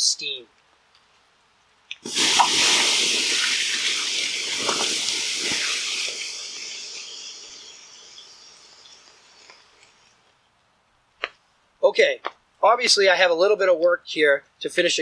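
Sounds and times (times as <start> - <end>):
coals hissing with steam: 1.9 - 10.3
sharp pops: 1.9 - 10.3, 11.2 - 11.4
water splashing: 2.0 - 9.9.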